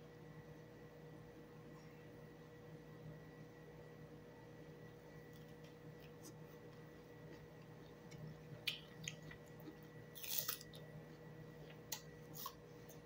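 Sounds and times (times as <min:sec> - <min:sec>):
faint chewing and mouth smacks: 0:05.3 - 0:13.0.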